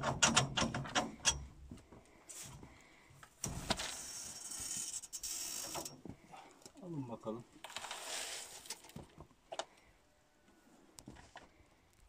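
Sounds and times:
grain pouring: 7.7s - 8.9s.

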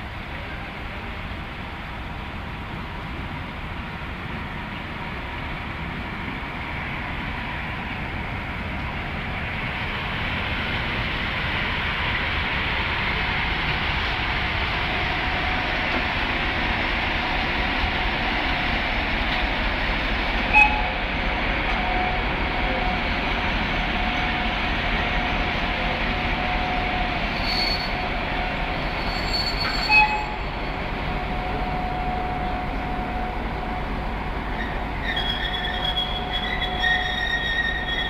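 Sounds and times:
train wheels rumbling on rail: 0.0s - 38.0s
train wheel squealing: 20.3s - 21.0s, 21.6s - 33.1s, 34.4s - 38.0s.

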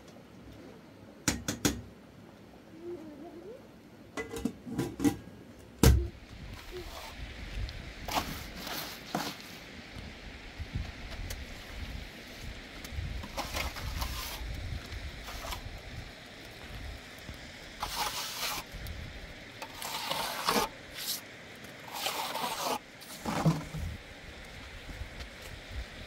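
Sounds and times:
trowel scraping wet plaster: 17.8s - 18.7s, 19.6s - 21.2s, 21.8s - 23.7s.

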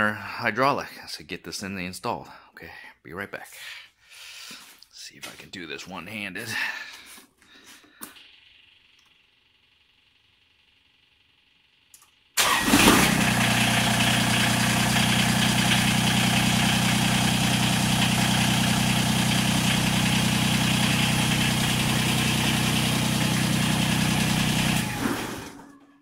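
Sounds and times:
small click: 11.9s - 12.2s
diesel tractor engine idling: 12.4s - 25.6s.

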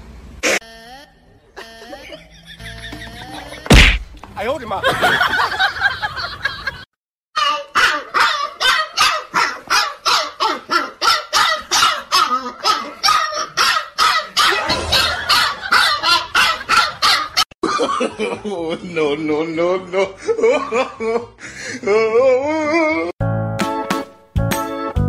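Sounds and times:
puppy barking: 7.4s - 17.4s.

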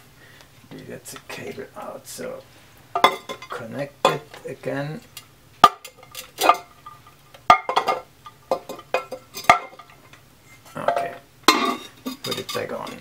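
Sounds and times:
ceramic lid clinking: 10.9s - 13.0s.

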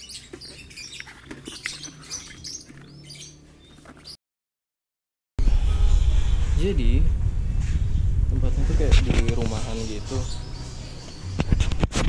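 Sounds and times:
small birds chirping: 0.0s - 4.2s, 9.3s - 11.8s
low hum: 5.4s - 11.9s.

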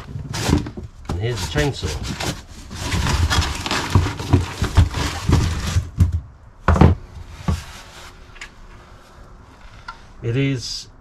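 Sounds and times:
cardboard rustling and scraping: 0.0s - 8.4s.

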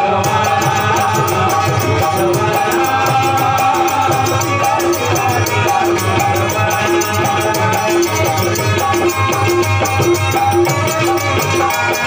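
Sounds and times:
harmonium melody: 0.0s - 12.0s
rattling percussion: 0.0s - 12.0s.

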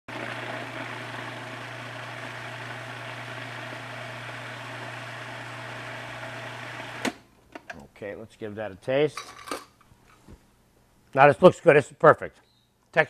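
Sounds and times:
food processor motor whirring: 0.1s - 7.2s.

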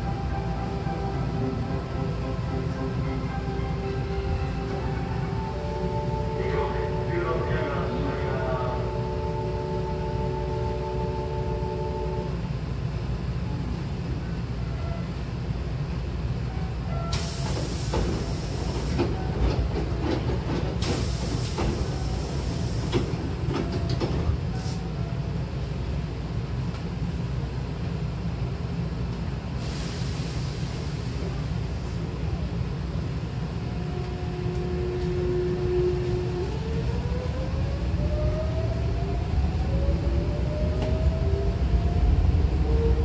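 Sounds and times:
train equipment low rumble: 0.0s - 43.0s
compressed-air hiss: 29.6s - 31.4s.

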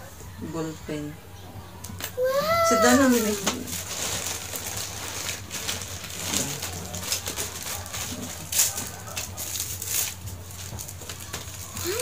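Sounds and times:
plastic packaging crinkling: 2.7s - 12.0s.

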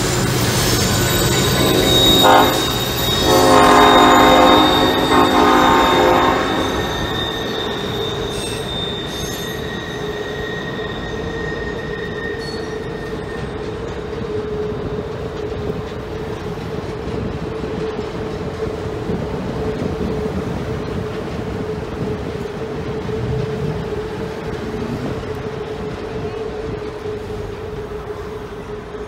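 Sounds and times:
wheel squeal: 0.0s - 15.8s
train wheels rumbling on trestle: 0.0s - 29.0s
locomotive horn blast: 1.3s - 8.7s.

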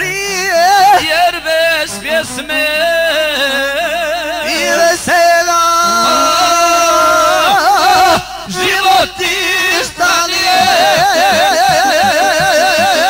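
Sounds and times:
man singing with vibrato: 0.0s - 13.0s
instrumental accompaniment: 9.4s - 13.0s.

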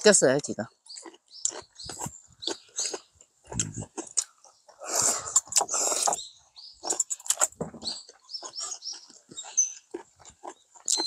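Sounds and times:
chewing with wet smacks: 0.7s - 11.0s.

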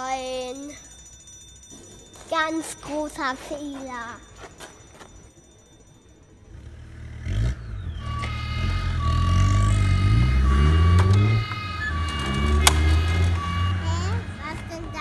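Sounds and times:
engine revving: 6.4s - 15.0s
electronic beeping tone: 6.5s - 15.0s.

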